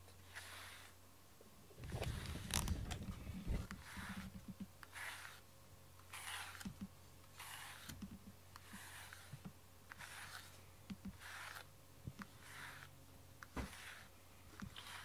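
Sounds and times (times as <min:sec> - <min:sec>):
brush swishing through fur: 0:00.2 - 0:01.0, 0:01.8 - 0:05.4, 0:06.1 - 0:15.0.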